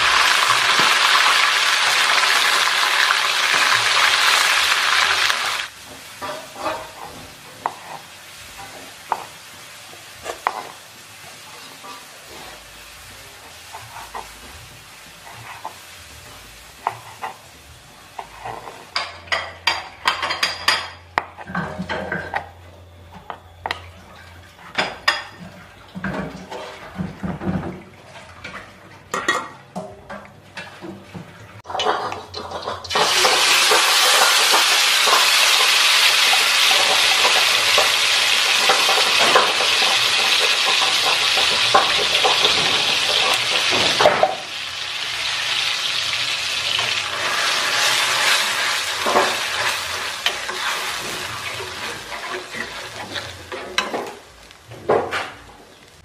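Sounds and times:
paste sizzling in hot oil: 0:00.0 - 0:19.1, 0:32.8 - 0:54.6.

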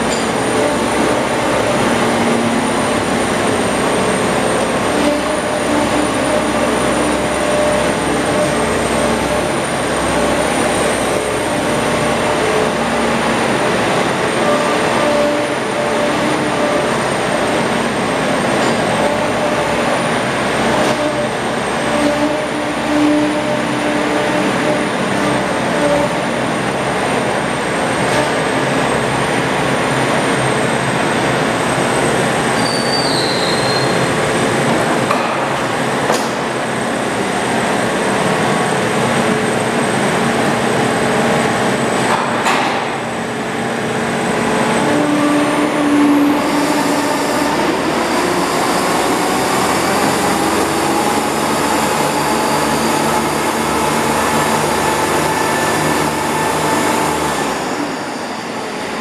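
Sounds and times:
diesel engine running: 0:00.0 - 0:32.6, 0:45.6 - 0:59.0
thin high whine: 0:44.7 - 0:59.0.

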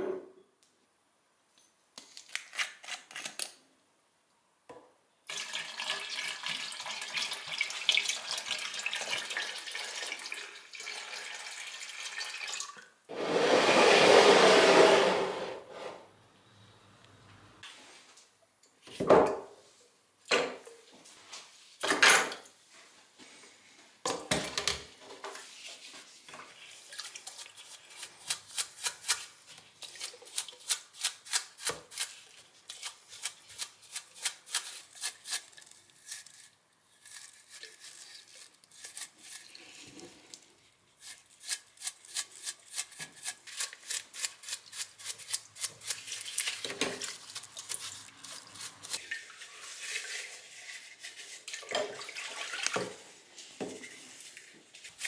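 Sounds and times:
brush scrubbing metal under liquid: 0:26.5 - 0:36.4, 0:41.0 - 0:52.8
liquid splashing: 0:51.5 - 0:52.9.

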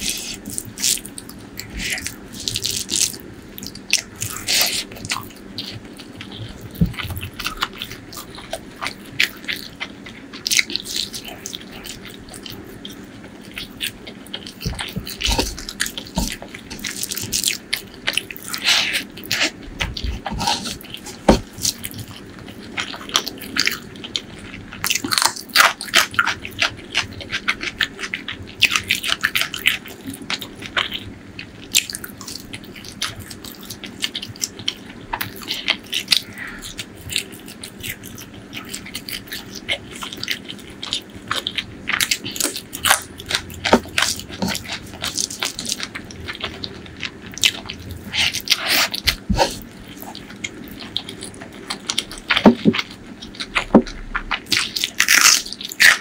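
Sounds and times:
wet chewing: 0:00.0 - 0:56.0
crunchy bites: 0:31.7 - 0:56.0.

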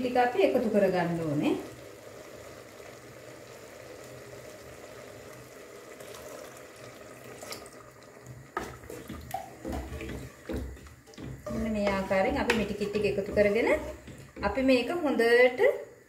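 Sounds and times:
curry simmering in pot: 0:00.0 - 0:15.1
coconut milk pouring: 0:01.5 - 0:11.3
spoon knocking against pot: 0:08.6 - 0:14.7.

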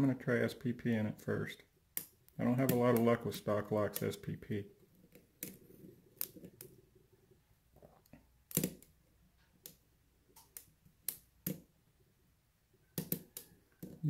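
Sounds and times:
lock pick clicking and scraping: 0:04.9 - 0:06.8, 0:08.5 - 0:11.7.

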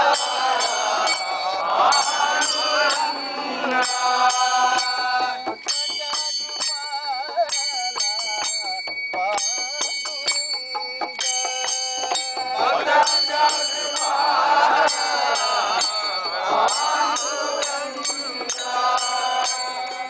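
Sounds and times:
group singing a devotional chant: 0:00.0 - 0:06.8, 0:11.3 - 0:20.0
small hand cymbals struck: 0:00.0 - 0:20.0.

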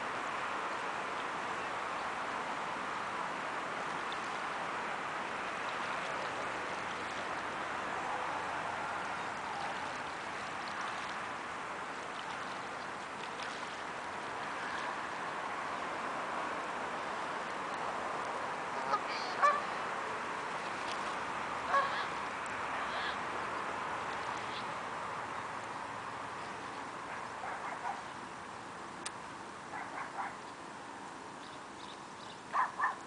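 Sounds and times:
steady background noise: 0:00.0 - 0:33.0
geese honking: 0:18.7 - 0:19.8, 0:21.6 - 0:22.2.

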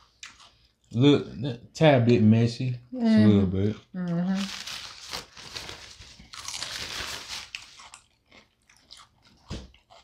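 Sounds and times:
crunchy food chewing: 0:00.0 - 0:01.0, 0:04.5 - 0:10.0.

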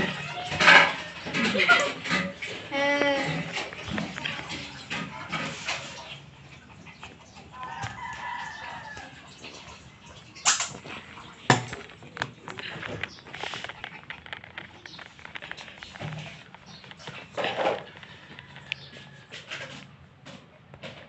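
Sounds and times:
rooster crowing: 0:07.6 - 0:09.2.

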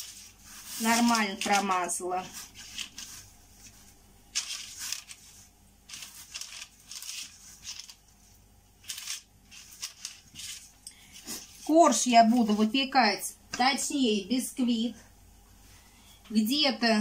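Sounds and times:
brush rustling baking paper: 0:00.0 - 0:12.8.

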